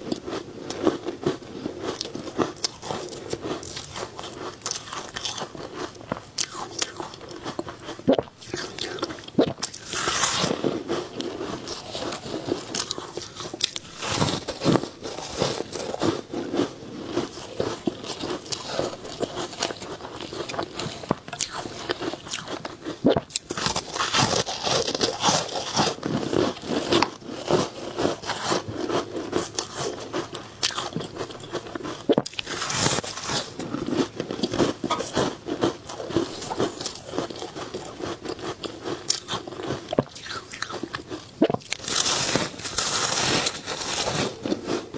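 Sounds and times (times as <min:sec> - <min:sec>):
ice crunching while chewing: 0:00.0 - 0:44.9.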